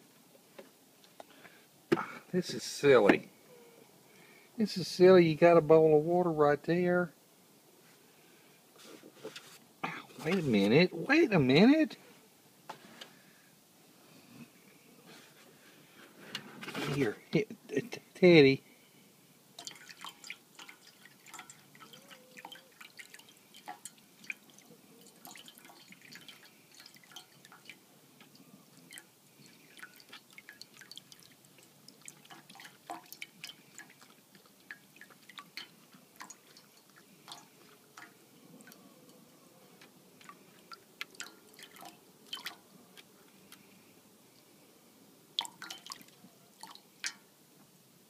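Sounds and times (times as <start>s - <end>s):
animal lapping water in a bowl: 19.6s - 39.2s, 39.8s - 43.7s, 45.4s - 47.2s.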